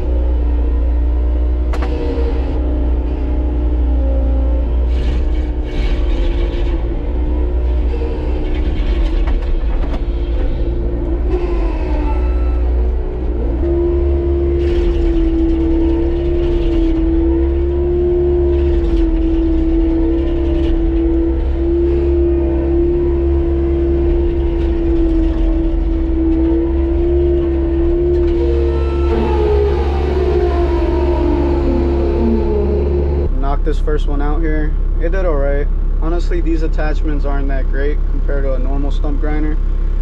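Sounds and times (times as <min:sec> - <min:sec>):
skid steer engine running: 0:00.0 - 0:40.0
stump grinder whine: 0:00.0 - 0:40.0.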